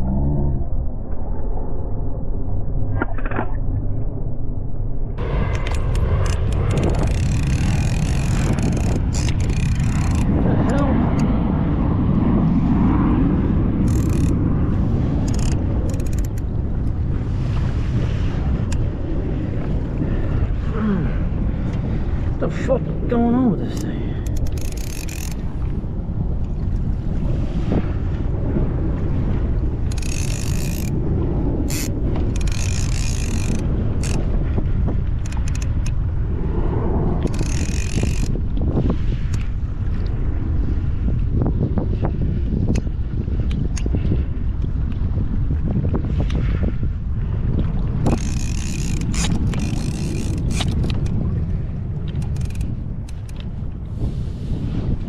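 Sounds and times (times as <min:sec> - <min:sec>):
boat and water noise: 0:00.0 - 0:55.0
wind buffeting microphone: 0:00.0 - 0:55.0
fishing reel whirring: 0:05.6 - 0:10.4, 0:13.8 - 0:16.6, 0:24.2 - 0:25.5, 0:29.8 - 0:31.0, 0:31.6 - 0:34.2, 0:35.2 - 0:35.9, 0:37.2 - 0:38.4, 0:48.0 - 0:51.1, 0:52.2 - 0:53.4
rapid high ticking: 0:05.7 - 0:10.3, 0:24.3 - 0:25.4, 0:29.9 - 0:30.9, 0:31.7 - 0:34.2, 0:37.3 - 0:38.3.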